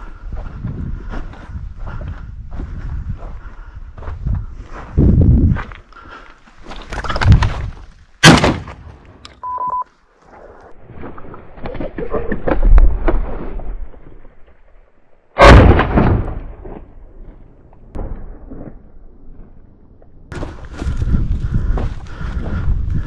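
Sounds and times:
shotgun shots: 8.2 - 8.8, 15.4 - 16.6.

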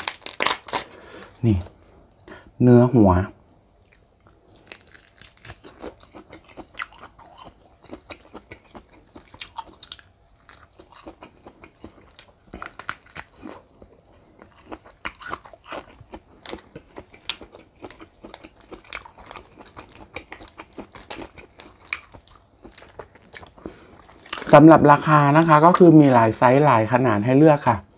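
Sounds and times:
chewing prawn meat: 0.0 - 0.9, 3.8 - 26.6.

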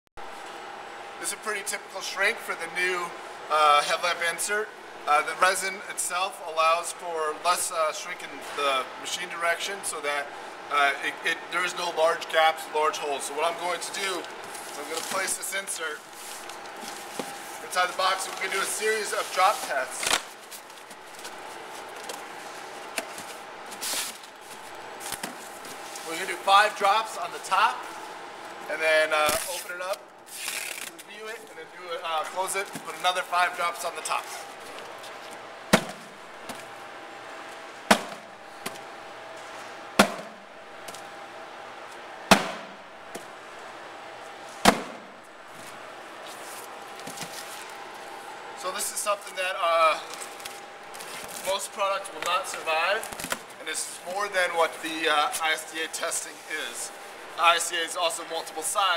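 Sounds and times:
cardboard rustling and scraping: 14.4 - 26.3, 45.5 - 47.8.

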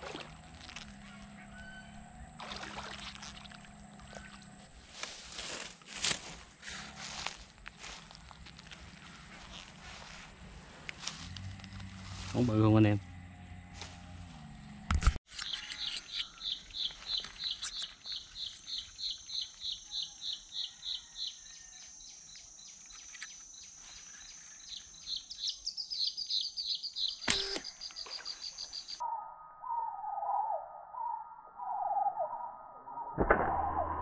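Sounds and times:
bird chirping: 15.4 - 33.2.

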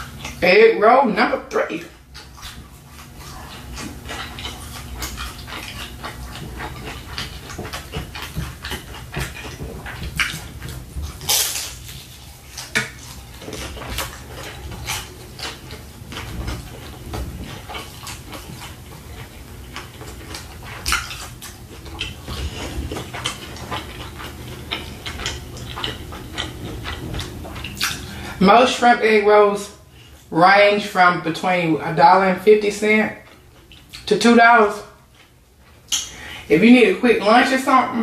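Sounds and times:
crunchy chewing: 0.0 - 0.4, 1.4 - 28.4, 33.1 - 34.1, 34.7 - 36.5
wet mouth sounds: 17.4 - 28.4, 35.9 - 36.4.

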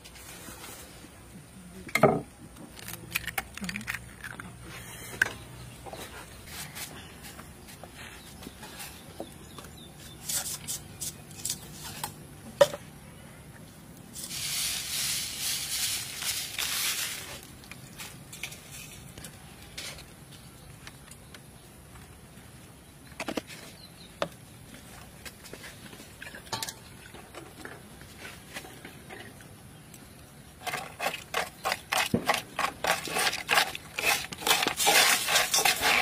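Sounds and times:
seasoning granules hissing into pan: 14.2 - 17.2.

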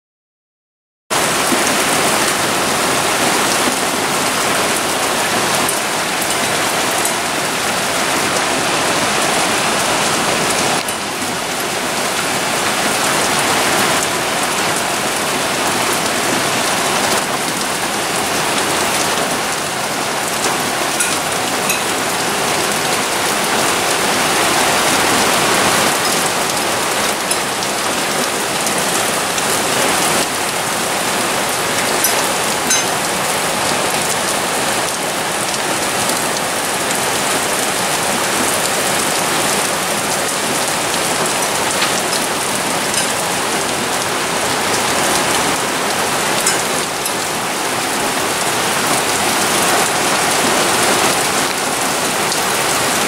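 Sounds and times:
heavy rain on foliage and paving: 1.1 - 53.0.

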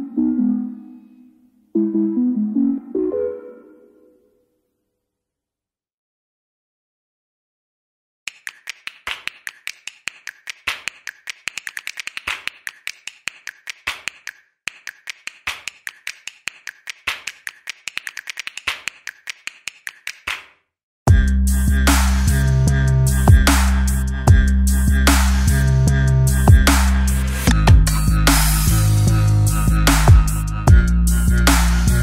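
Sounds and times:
electronic music with a beat: 21.1 - 32.0.

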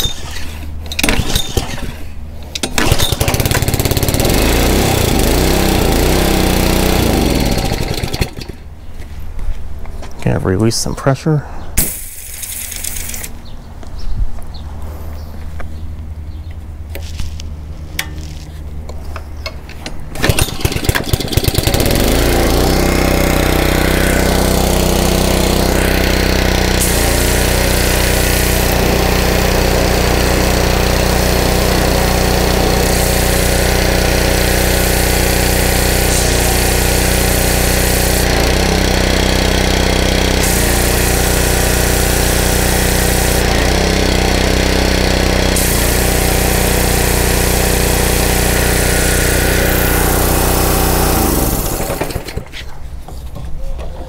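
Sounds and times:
small engine running: 0.0 - 8.7, 20.1 - 52.6
spray wand hissing: 25.2 - 31.1, 32.0 - 38.4, 40.3 - 43.8, 44.8 - 51.4.

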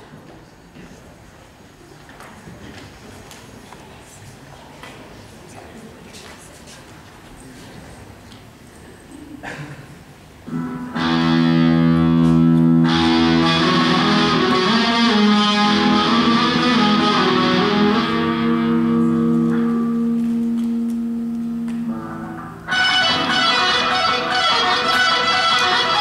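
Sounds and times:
electric guitar playing: 10.5 - 26.0.

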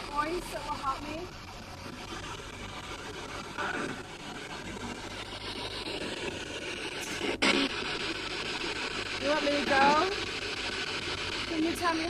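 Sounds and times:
broken radio sound: 0.0 - 12.0
radio static hiss: 0.0 - 12.0.

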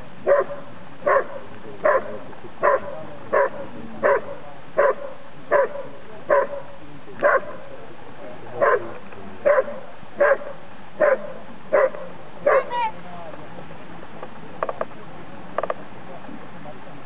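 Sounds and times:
dog barking: 0.3 - 6.6, 7.2 - 7.6, 8.6 - 12.8.

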